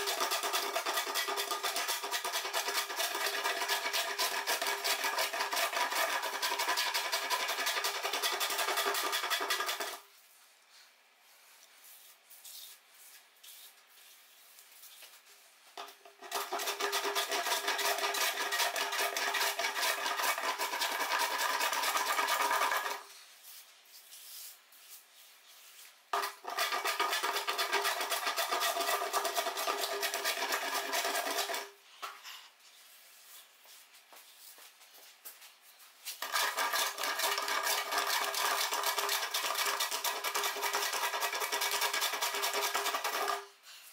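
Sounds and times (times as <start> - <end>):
hand plane scraping wood: 0.0 - 10.0, 16.2 - 23.0, 26.2 - 31.7, 36.2 - 43.4.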